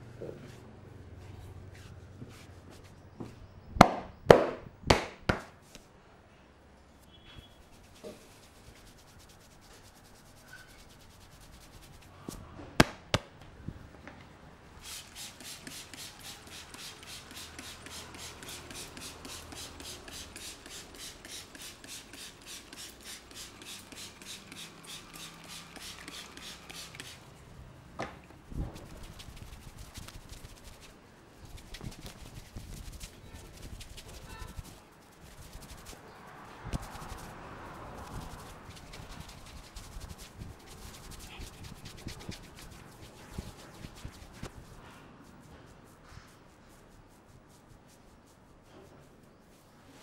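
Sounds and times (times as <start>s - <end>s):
spray bottle hissing squirts: 14.8s - 27.2s.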